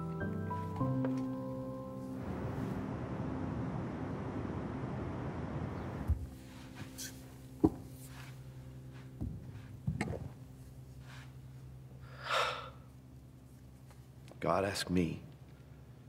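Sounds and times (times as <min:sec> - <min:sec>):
room hum: 0:00.0 - 0:16.0
steady rushing noise: 0:02.2 - 0:07.0
knocks and thumps: 0:09.2 - 0:10.4.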